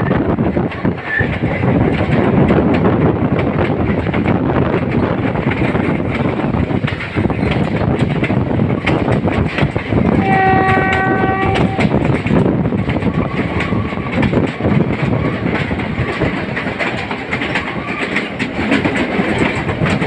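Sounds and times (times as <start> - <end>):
train coaches rumbling: 0.0 - 20.0
wheels clacking over rail joints: 0.0 - 20.0
locomotive horn: 10.2 - 12.0.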